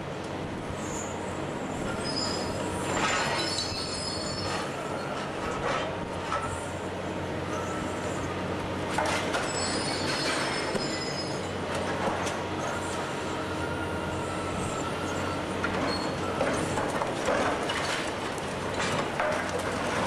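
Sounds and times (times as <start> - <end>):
diesel engine under load: 0.0 - 20.0
high squeals: 1.9 - 5.2, 9.3 - 11.6.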